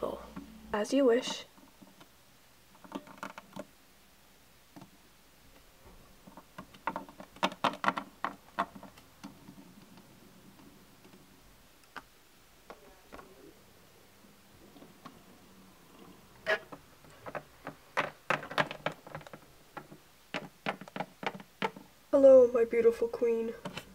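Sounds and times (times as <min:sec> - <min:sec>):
plastic toys tapping on wood: 0:06.2 - 0:09.6, 0:16.7 - 0:21.9.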